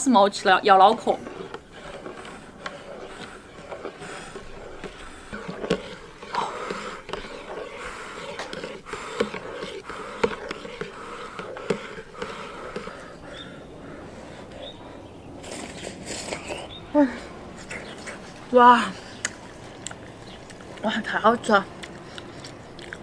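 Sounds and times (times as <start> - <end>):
spoon scraping in bowl: 0.2 - 13.4
person blowing on food: 1.4 - 14.6.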